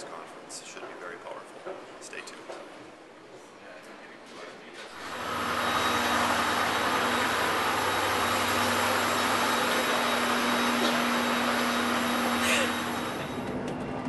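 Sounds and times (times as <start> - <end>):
jet turbine rush and whistle: 5.0 - 14.0.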